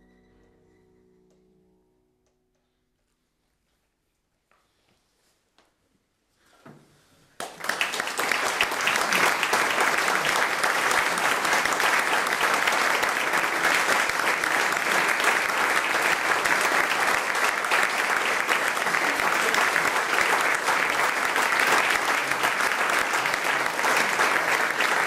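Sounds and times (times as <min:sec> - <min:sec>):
audience applauding: 0:07.4 - 0:25.0.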